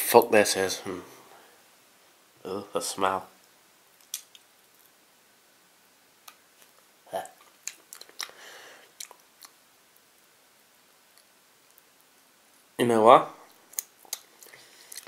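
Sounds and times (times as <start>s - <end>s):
mouth chewing: 4.0s - 4.4s, 6.2s - 9.6s, 13.5s - 15.0s.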